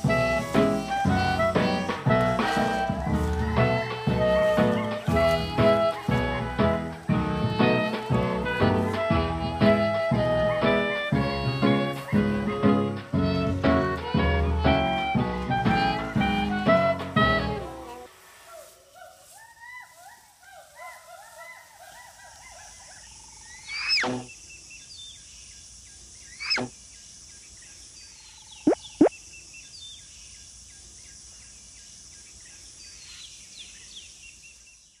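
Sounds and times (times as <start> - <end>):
birds chirping: 0.0 - 9.0, 21.7 - 31.2
high insect drone: 0.0 - 18.3.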